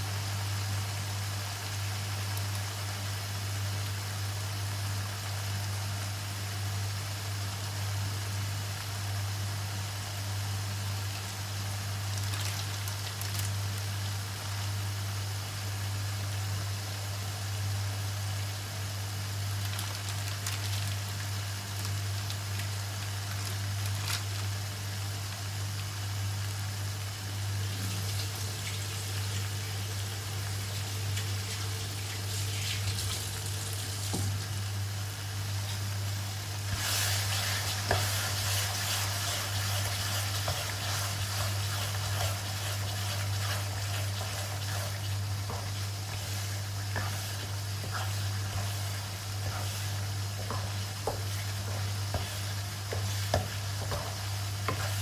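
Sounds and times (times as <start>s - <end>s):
chili paste sizzling in wok: 0.0s - 55.0s
steady low hum: 0.0s - 55.0s.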